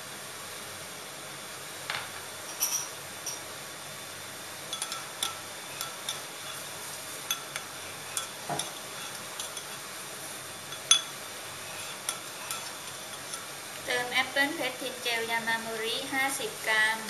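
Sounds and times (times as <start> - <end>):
spoon clinking against glass: 2.5 - 3.4, 4.7 - 6.2, 7.3 - 7.6, 10.7 - 11.1
spoon stirring in glass bowl: 4.7 - 9.9, 10.7 - 13.6.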